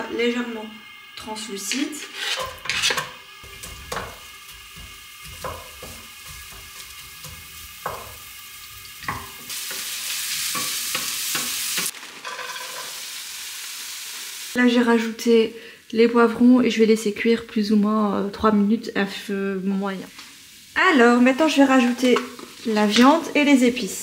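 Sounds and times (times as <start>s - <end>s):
onions sizzling in oil: 0.0s - 24.0s
onions scraped off cutting board: 1.9s - 4.0s
spatula knocking against pan: 3.0s - 8.2s, 9.0s - 9.8s
frozen peppers clattering into pan: 10.6s - 13.0s.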